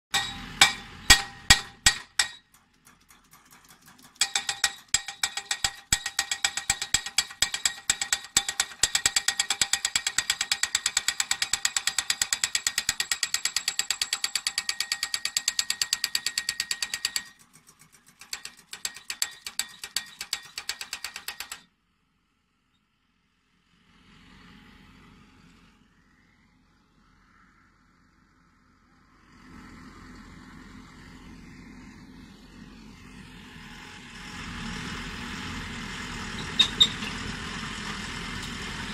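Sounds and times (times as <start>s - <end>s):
pile driver striking steel post: 0.1s - 21.6s.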